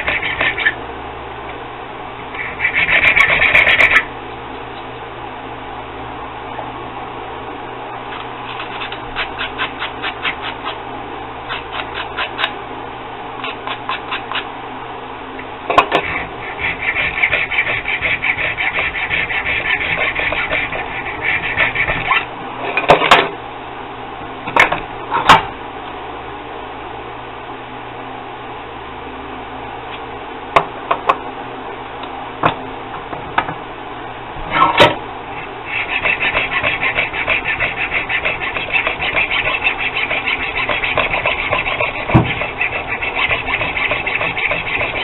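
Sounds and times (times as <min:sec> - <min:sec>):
needle file filing metal: 0:00.0 - 0:00.7, 0:02.4 - 0:04.1, 0:08.4 - 0:10.8, 0:11.5 - 0:12.5, 0:15.9 - 0:22.3, 0:35.4 - 0:45.0.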